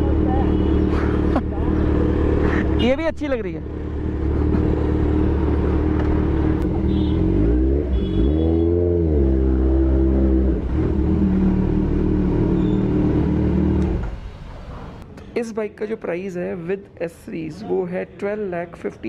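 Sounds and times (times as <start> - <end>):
motorcycle engine revving: 0.0 - 14.4.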